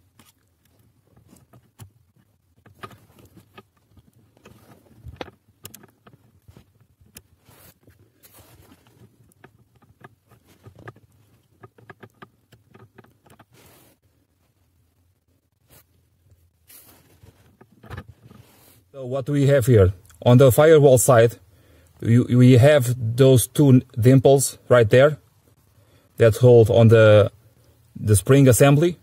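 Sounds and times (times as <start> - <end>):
small clicks taps and rustles: 0.0 - 13.6, 17.1 - 18.5.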